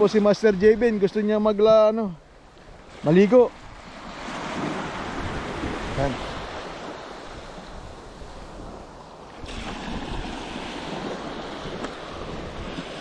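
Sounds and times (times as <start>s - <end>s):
small waves washing ashore: 0.0s - 13.0s
wind buffeting microphone: 2.7s - 13.0s.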